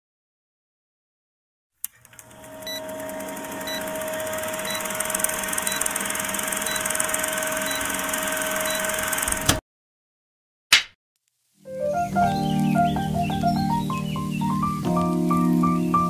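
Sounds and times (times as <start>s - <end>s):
click: 1.8s - 2.2s
film projector rattle and hum: 1.9s - 9.6s.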